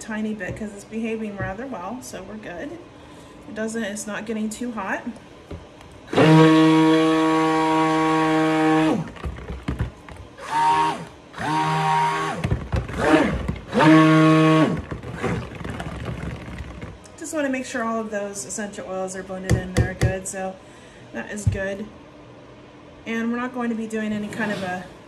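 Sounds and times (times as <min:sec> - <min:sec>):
stick blender running: 0:06.1 - 0:17.1.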